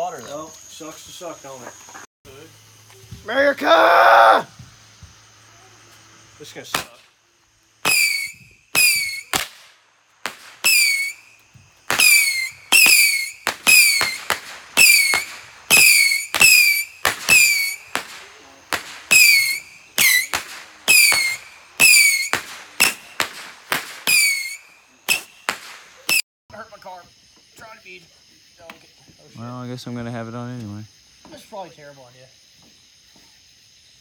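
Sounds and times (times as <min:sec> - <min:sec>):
whistling firework shots: 0:06.4 - 0:26.2.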